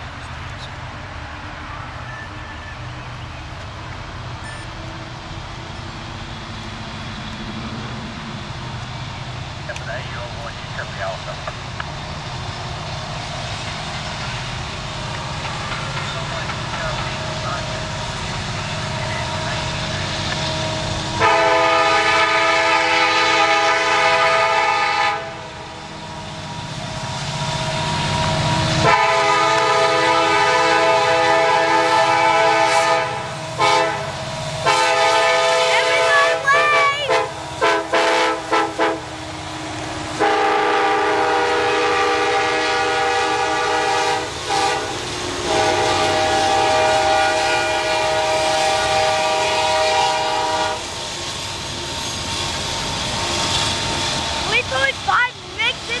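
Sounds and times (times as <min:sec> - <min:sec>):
rumble of passing train: 0:00.0 - 0:56.0
locomotive air horn chord: 0:21.2 - 0:25.6, 0:28.8 - 0:39.1, 0:40.2 - 0:50.9.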